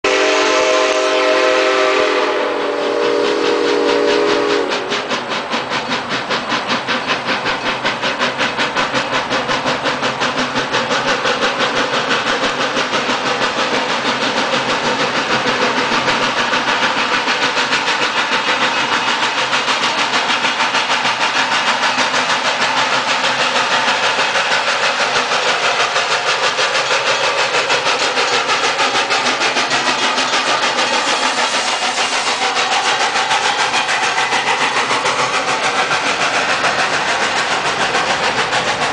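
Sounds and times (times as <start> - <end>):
steam locomotive chime whistle: 0.1 - 5.3
steam locomotive exhaust chuffing: 0.1 - 38.9.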